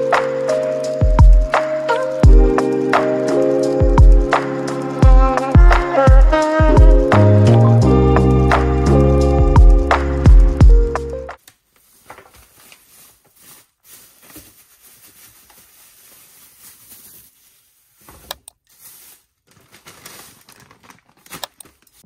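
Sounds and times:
plastic bags crinkling: 11.4 - 22.0.

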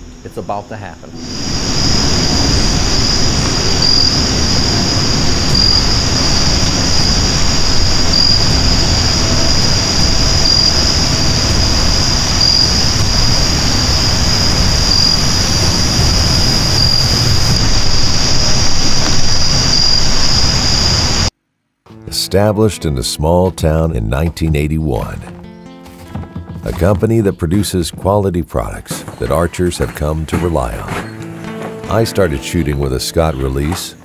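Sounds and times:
insect chorus drone: 0.0 - 21.3
low rushing noise: 0.0 - 21.3.

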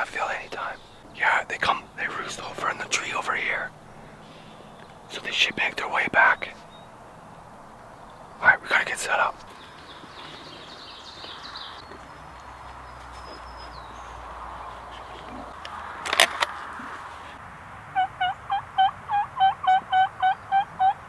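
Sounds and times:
turkey calling: 17.9 - 21.0.

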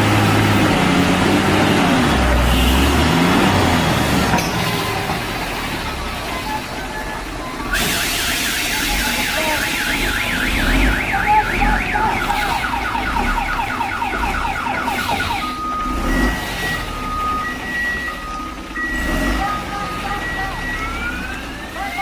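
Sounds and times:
diesel truck engine rumble: 0.0 - 22.0
electronic siren horn warbling: 7.7 - 16.9.

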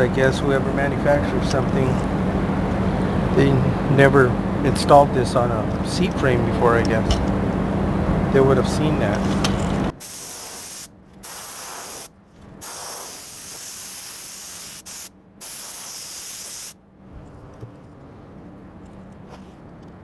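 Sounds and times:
spray gun hissing bursts: 9.9 - 16.8
air puff: 10.0 - 16.8.

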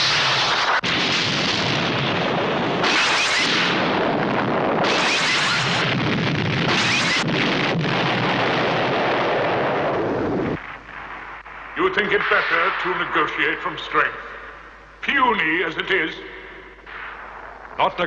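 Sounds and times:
explosion sound effects: 0.0 - 13.3.

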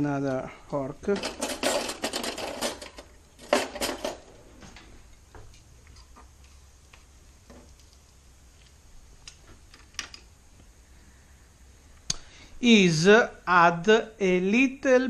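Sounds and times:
cutlery clinking in a drawer: 1.1 - 4.2.

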